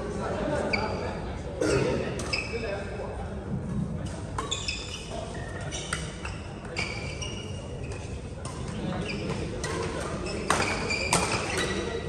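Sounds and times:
shoes squeaking on court floor: 2.2s - 2.9s, 4.0s - 12.0s
racket hitting shuttlecock: 9.6s - 11.8s.

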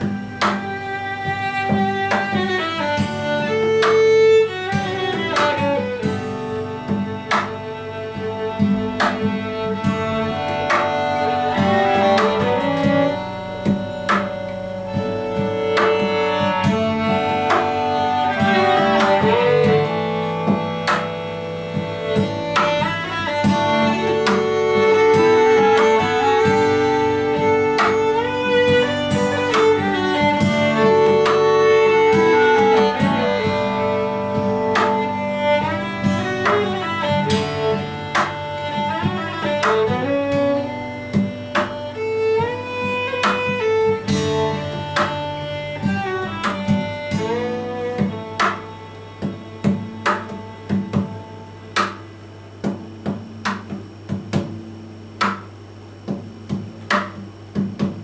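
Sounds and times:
violin melody: 0.0s - 52.0s
acoustic guitar strumming: 0.0s - 58.0s
clarinet melody: 10.2s - 20.4s.

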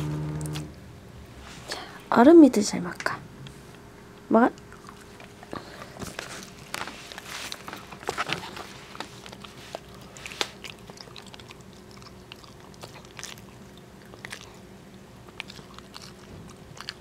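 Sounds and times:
cat chewing crunchy treats: 4.6s - 17.0s.

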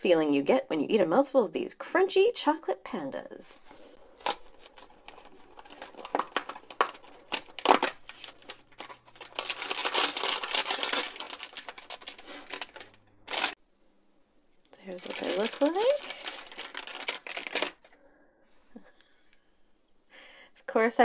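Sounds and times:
plastic wrapper crinkling: 4.0s - 13.6s, 14.7s - 18.0s
cardboard box tearing: 4.2s - 13.6s, 15.0s - 17.8s.

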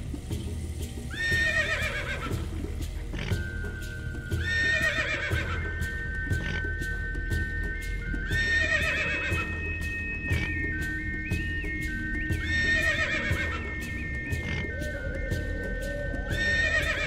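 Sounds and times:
background music with held tones: 0.0s - 17.0s
horse whinnying: 1.2s - 2.4s, 4.4s - 5.6s, 8.4s - 9.5s, 12.5s - 13.6s, 16.3s - 17.0s.

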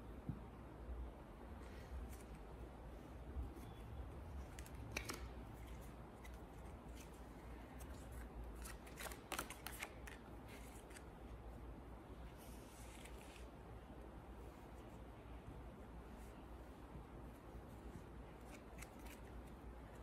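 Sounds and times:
low room hum: 0.0s - 20.0s
playing cards flicking: 4.5s - 5.4s, 8.6s - 11.1s.

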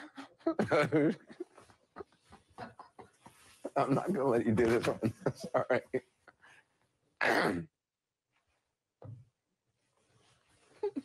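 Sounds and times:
man giggling: 0.4s - 1.7s, 3.7s - 6.0s.

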